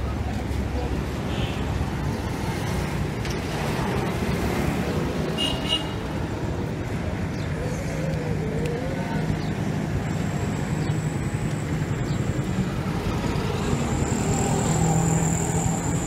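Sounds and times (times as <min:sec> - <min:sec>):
street traffic: 0:00.0 - 0:16.0.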